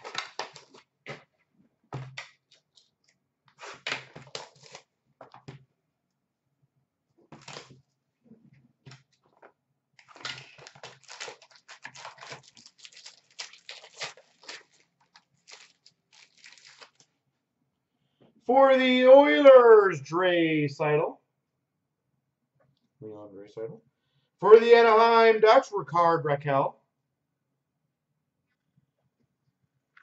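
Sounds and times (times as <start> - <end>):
foil wrappers crinkling: 0.0 - 0.9, 3.6 - 4.9, 7.4 - 7.8, 10.0 - 17.1
pack ripping open: 0.0 - 0.9, 3.5 - 4.9, 7.4 - 7.8, 10.0 - 17.1.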